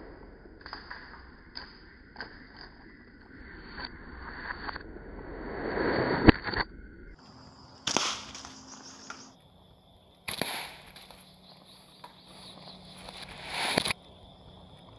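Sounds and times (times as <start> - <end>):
slingshot shots cracking on log: 7.8 - 9.3, 10.3 - 11.2.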